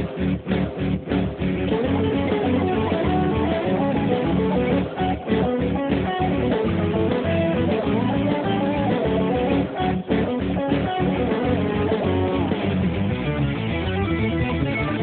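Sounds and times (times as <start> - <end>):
guitar-led music with bass: 0.0 - 15.0.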